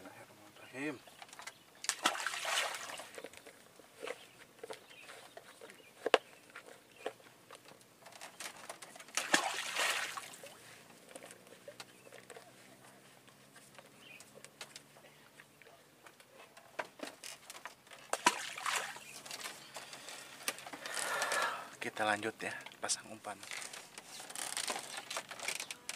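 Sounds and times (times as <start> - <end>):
water splashing and sloshing: 1.3 - 3.5, 8.2 - 10.8, 17.5 - 20.7.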